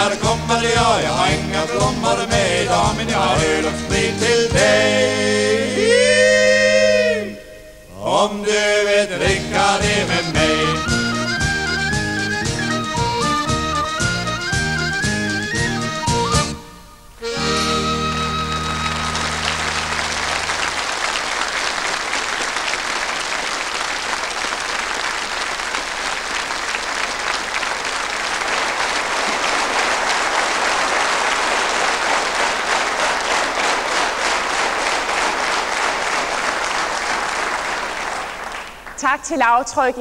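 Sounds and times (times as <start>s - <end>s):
accordion: 0.0s - 7.7s, 8.5s - 21.3s
folk band final chord: 12.4s - 21.2s
audience applause: 17.8s - 39.0s.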